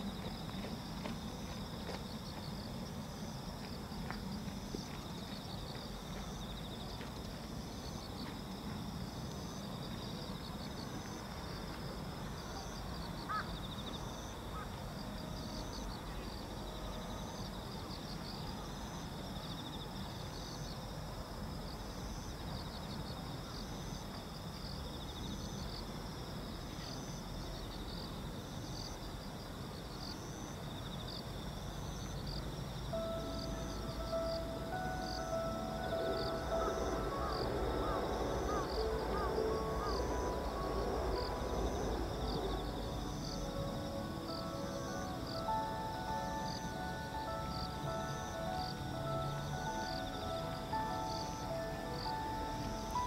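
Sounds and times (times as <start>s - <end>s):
insects trilling and chirping: 0.0s - 53.0s
bird call: 33.0s - 43.6s
low rumble: 35.5s - 44.4s.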